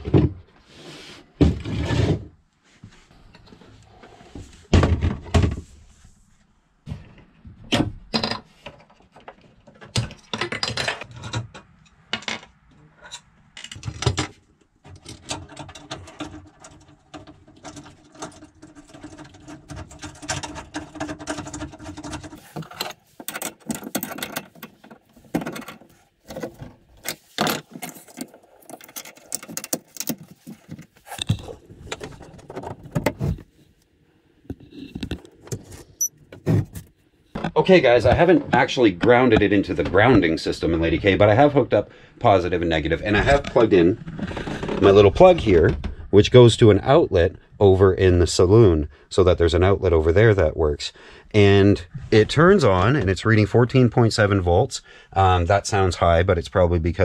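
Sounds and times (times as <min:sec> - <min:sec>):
clicks and knocks of handling: 0:08.1 - 0:33.5.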